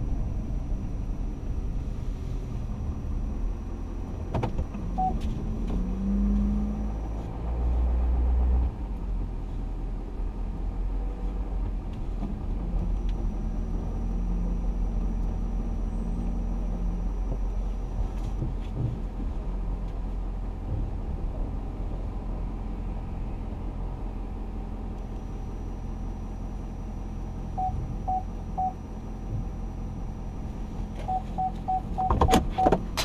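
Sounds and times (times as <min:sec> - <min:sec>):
louder low rumble: 0:00.0 - 0:19.8
truck engine rumble in cab: 0:00.0 - 0:33.0.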